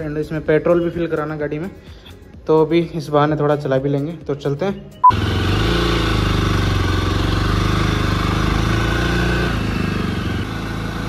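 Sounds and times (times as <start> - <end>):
motorcycle engine running: 5.0 - 11.0.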